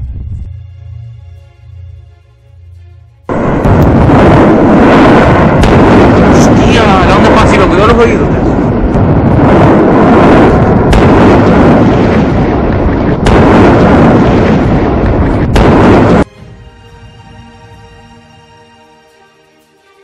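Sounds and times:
soft music: 0.0s - 3.6s, 16.2s - 20.0s
sharp blast cracks: 3.3s - 16.3s
volcano roaring: 3.3s - 16.3s.

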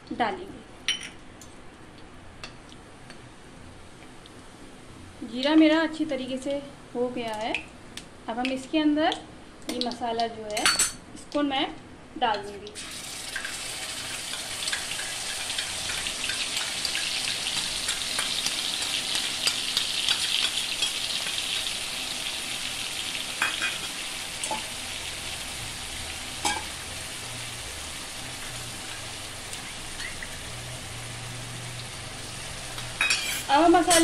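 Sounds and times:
paste sizzling in hot oil: 12.8s - 34.0s.

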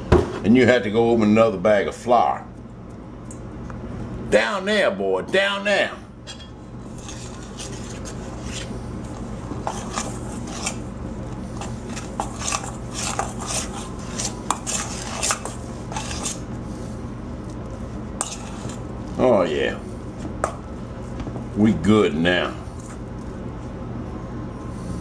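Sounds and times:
steady low hum: 0.0s - 25.0s
fork scraping metal bowl: 6.9s - 10.9s, 11.6s - 16.5s, 18.2s - 18.9s.

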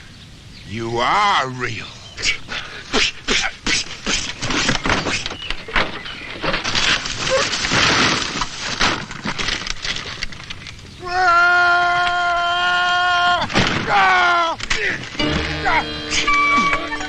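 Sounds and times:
wooden structure collapsing: 4.1s - 17.0s.

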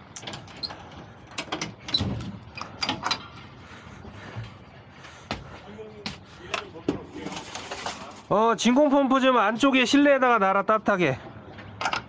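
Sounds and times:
irregular clicks and knocks: 0.0s - 3.5s.

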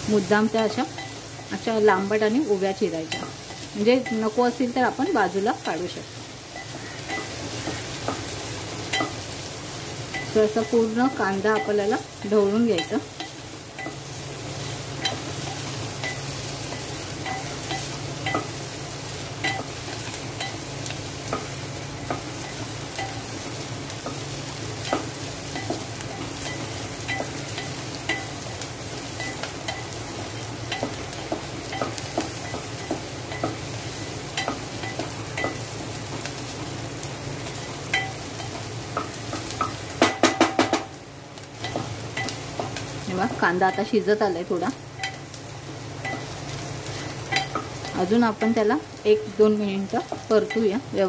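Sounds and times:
onions sizzling in oil: 0.0s - 51.0s
spatula tapping pot: 37.9s - 41.0s.

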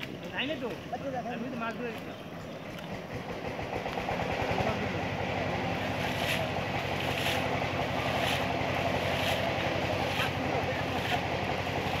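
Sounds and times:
machine hum: 2.5s - 12.0s.

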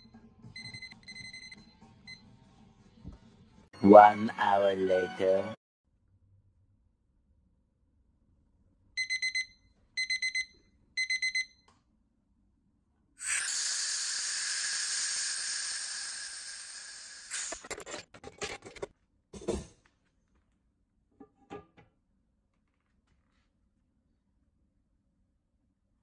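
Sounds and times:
kitchen timer beeping: 9.0s - 11.7s.

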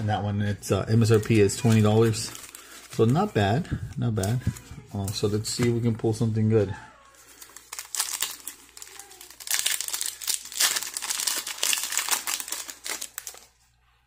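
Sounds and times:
foil wrapper crinkling and tearing: 1.0s - 3.6s, 7.2s - 13.6s.

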